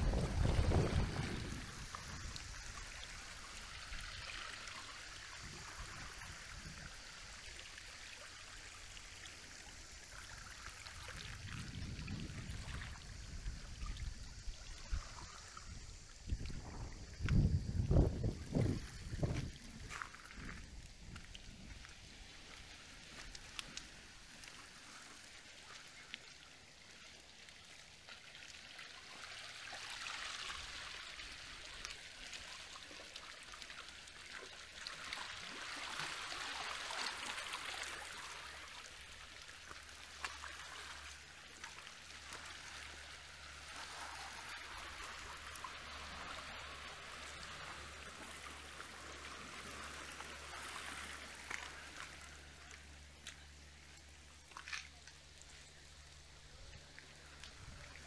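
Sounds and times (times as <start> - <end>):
small waves washing over rocks: 0.0 - 7.2, 16.3 - 53.4
splashes and drips: 0.0 - 58.0.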